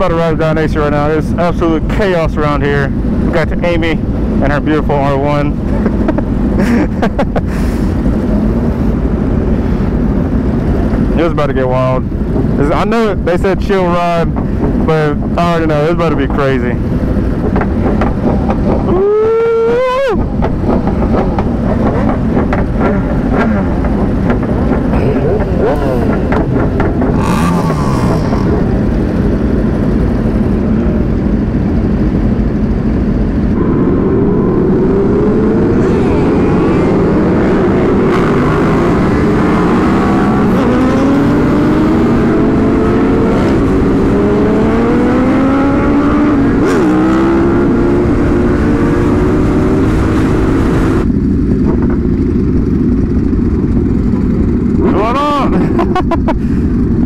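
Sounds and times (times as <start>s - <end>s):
motorcycles idling and revving: 0.0s - 57.0s
wind noise on microphone: 0.0s - 57.0s
motorcycle accelerating through gears: 20.4s - 55.9s.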